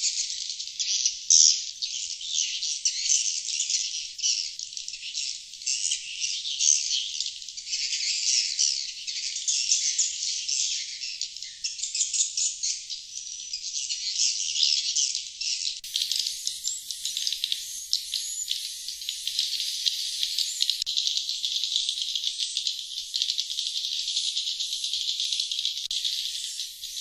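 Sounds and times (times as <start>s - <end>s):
swiftlets twittering: 15.8s - 27.0s.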